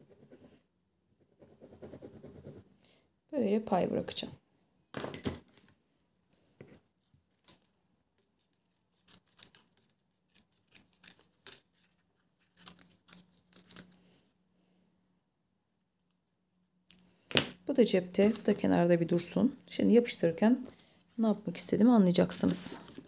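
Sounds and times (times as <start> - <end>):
scissors snipping paper: 8.3 - 13.9.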